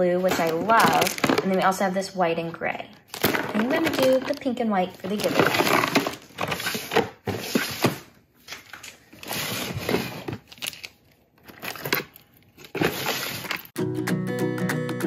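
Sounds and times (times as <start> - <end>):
plastic toys rattling and clicking: 3.1 - 7.9.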